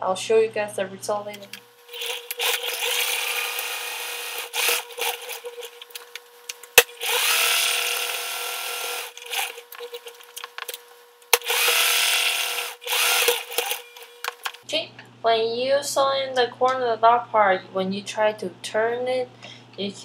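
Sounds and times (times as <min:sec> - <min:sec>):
electric sewing machine running: 0:01.9 - 0:05.5, 0:07.0 - 0:09.6, 0:11.4 - 0:14.0.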